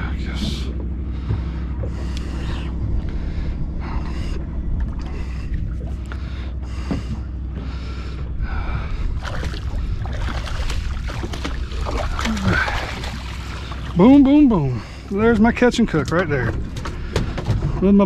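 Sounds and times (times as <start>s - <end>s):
fish thrashing and water splashing: 9.1s - 17.4s.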